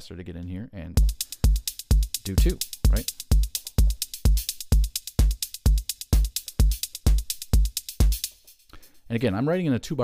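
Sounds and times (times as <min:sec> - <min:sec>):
electronic kick drum: 0:01.0 - 0:08.6
fast hi-hat ticks: 0:01.0 - 0:09.4.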